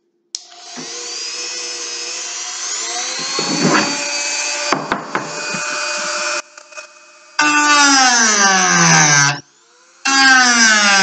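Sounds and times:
power tool whining: 0.4s - 11.0s
rough grinding: 3.0s - 6.4s
sharp knocks: 3.1s - 4.1s, 4.7s - 5.8s.

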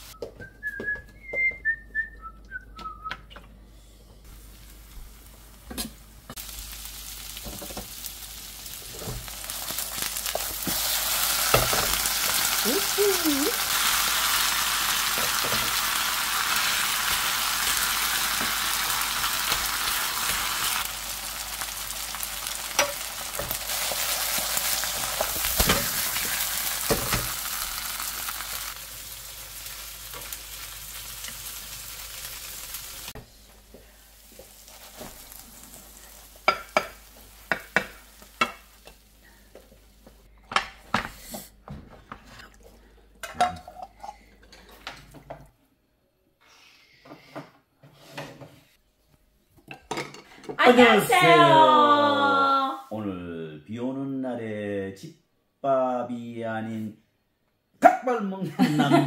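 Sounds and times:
pancake sizzling in oil: 4.3s - 40.3s.

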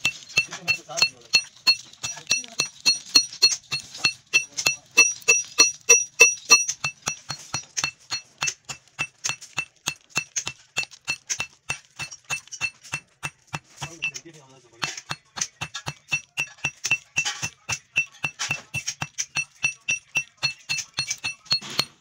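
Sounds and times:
hammer blows on metal: 0.0s - 14.2s.

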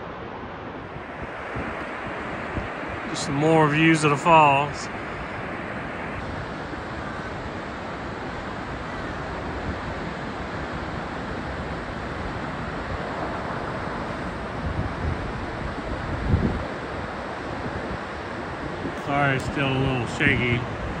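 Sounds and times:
wind gusts on microphone: 0.0s - 21.0s
waterfall rushing: 1.0s - 14.6s, 16.7s - 21.0s.

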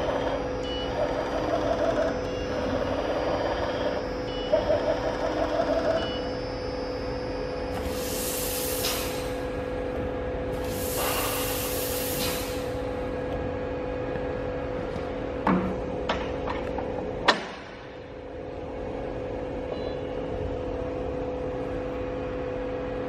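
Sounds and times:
machinery humming: 0.0s - 23.0s
loud air hiss: 7.8s - 9.5s, 10.6s - 12.8s.

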